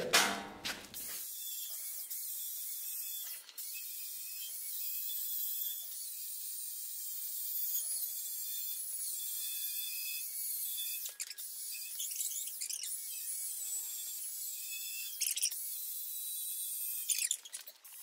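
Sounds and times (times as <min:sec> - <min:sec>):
angle grinder cutting steel: 0:01.2 - 0:18.0.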